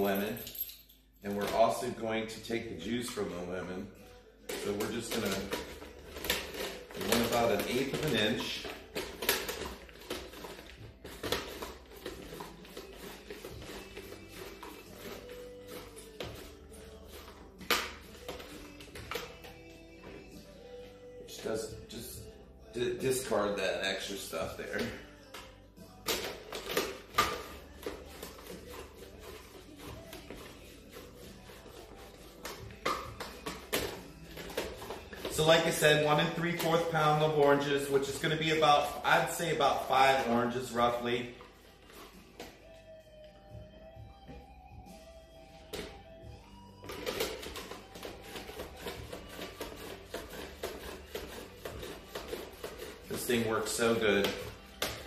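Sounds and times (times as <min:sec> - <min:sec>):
orange scraping on mandoline slicer: 0:04.5 - 0:19.7, 0:26.1 - 0:42.2, 0:46.9 - 0:55.0
fruit scraping across blade: 0:27.2 - 0:36.9, 0:47.0 - 0:55.0.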